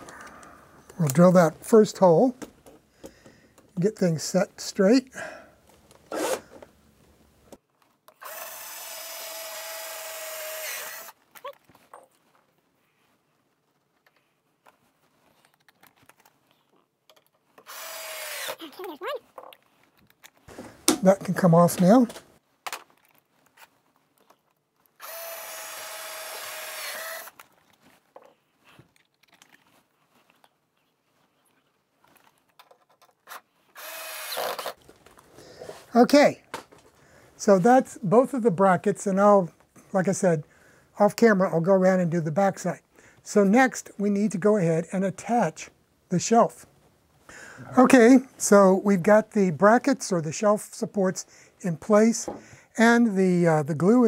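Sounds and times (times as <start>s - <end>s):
cordless drill whining: 6.1s - 6.7s, 8.1s - 11.2s, 17.6s - 18.6s, 25.0s - 27.4s, 33.7s - 34.8s.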